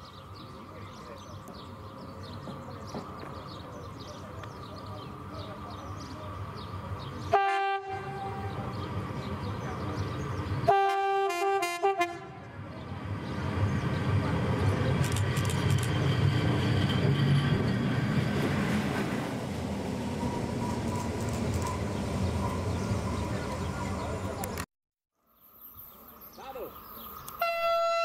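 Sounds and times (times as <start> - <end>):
train wheels rumbling on rail: 0.5 - 11.6, 12.3 - 24.6
locomotive horn blasts: 7.3 - 8.6, 10.7 - 12.4, 27.4 - 28.0.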